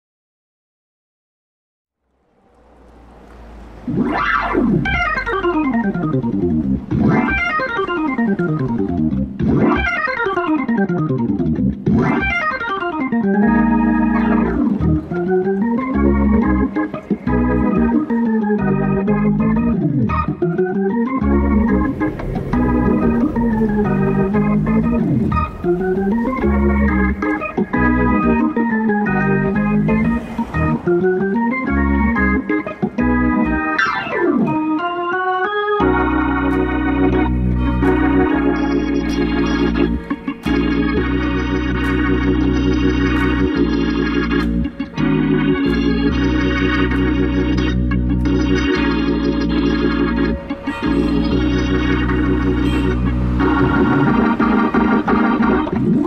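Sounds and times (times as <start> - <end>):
hammond organ playing: 2.9 - 56.0.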